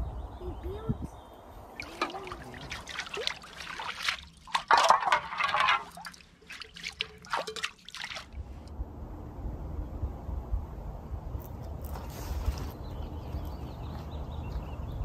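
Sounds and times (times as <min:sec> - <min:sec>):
water sloshing and splashing: 0:01.7 - 0:08.7.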